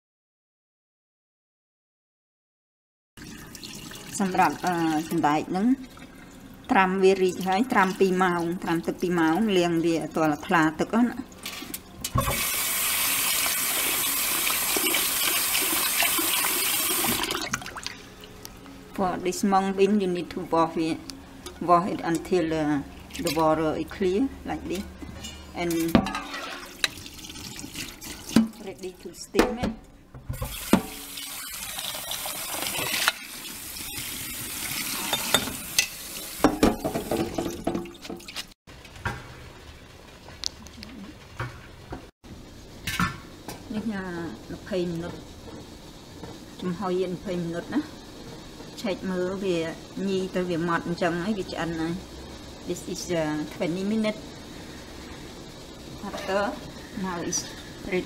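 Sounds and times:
tap water running into bowl: 3.2s - 5.2s, 11.4s - 18.3s, 25.9s - 28.6s
faucet water running into bowl: 3.2s - 18.4s, 25.7s - 29.0s, 30.4s - 38.4s
bowl knocking against sink: 36.4s - 38.2s.

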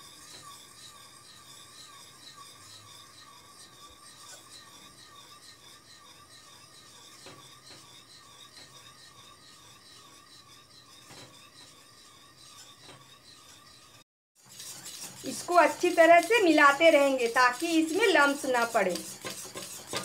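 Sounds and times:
wire whisk rasping in pan: 0.0s - 20.0s
whisk clicking against pan: 14.4s - 20.0s.

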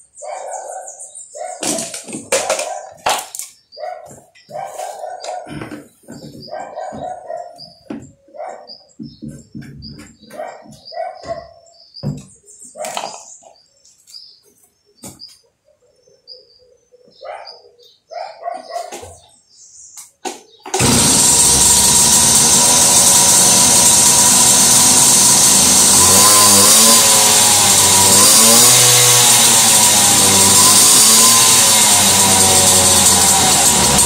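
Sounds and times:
moped engine revving: 20.7s - 34.0s.

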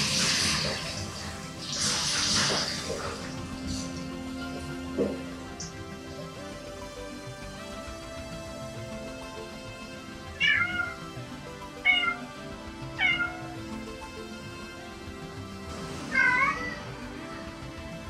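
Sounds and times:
cat meowing: 10.4s - 11.1s, 11.8s - 12.3s, 13.0s - 13.6s, 16.1s - 16.9s.

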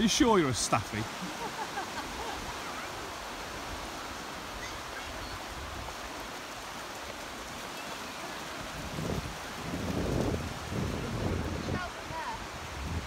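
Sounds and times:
waves washing on beach: 0.0s - 13.0s.

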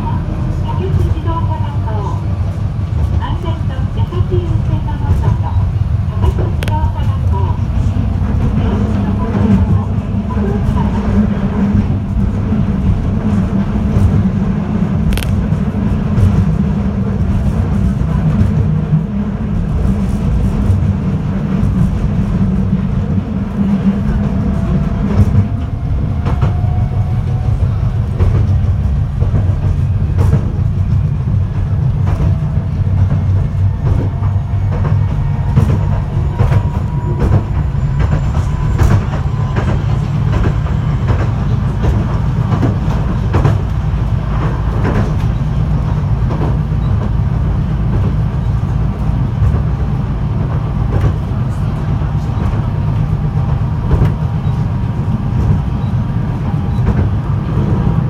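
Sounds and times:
rail joint clicks: 0.0s - 58.0s
tram wheels rumbling: 0.0s - 58.0s.

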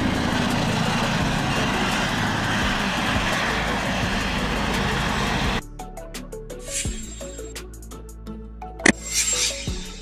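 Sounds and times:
helicopter rotor and turbine: 0.0s - 5.6s, 6.6s - 7.7s, 8.9s - 10.0s.

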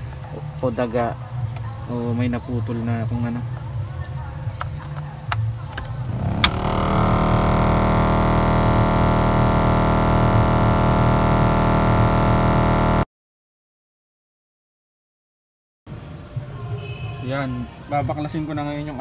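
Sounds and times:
blower fan droning buzz: 6.0s - 13.1s.

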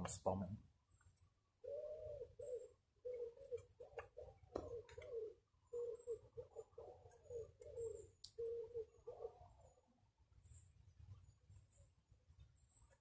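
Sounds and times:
bird cooing: 1.6s - 9.9s.

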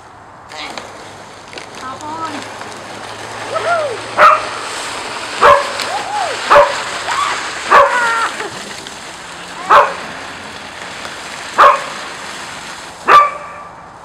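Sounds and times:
puppy barking: 4.2s - 4.5s, 5.4s - 5.8s, 6.5s - 6.8s, 7.7s - 8.0s, 9.7s - 10.0s, 11.6s - 11.9s, 13.1s - 13.7s.

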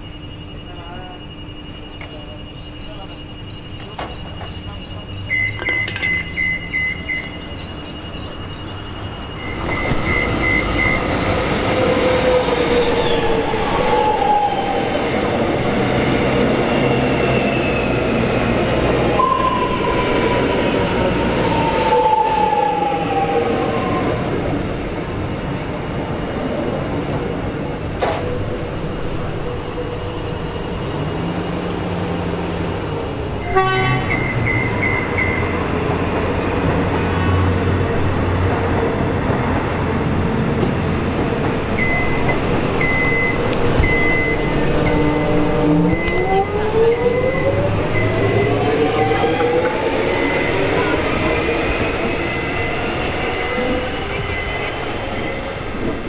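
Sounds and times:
electric train wheel noise: 0.0s - 56.0s.

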